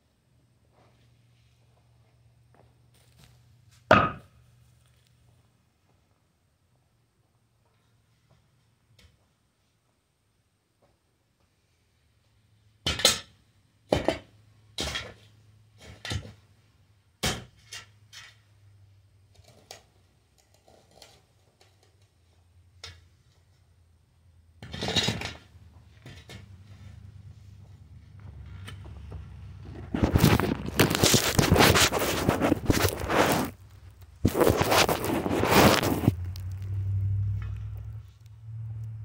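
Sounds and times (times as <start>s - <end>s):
shovel scraping dirt: 29.7s - 36.6s.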